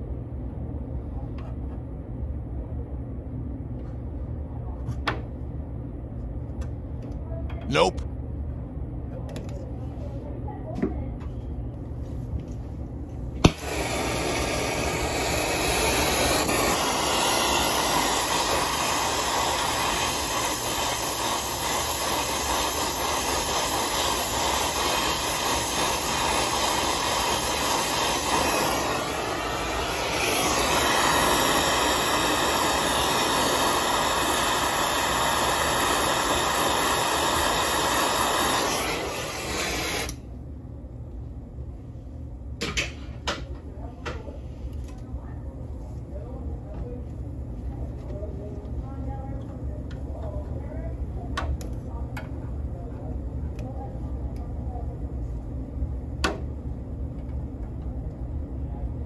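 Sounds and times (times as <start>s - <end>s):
torch igniter click: 13.4s - 21.6s, 35.4s - 40.2s
torch flame roaring: 13.4s - 40.3s.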